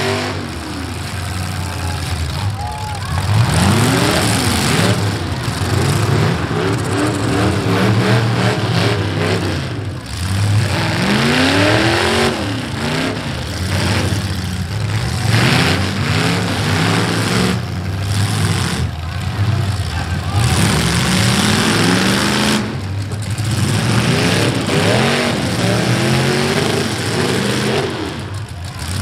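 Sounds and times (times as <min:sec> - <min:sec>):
car engines revving hard: 0:00.0 - 0:29.0.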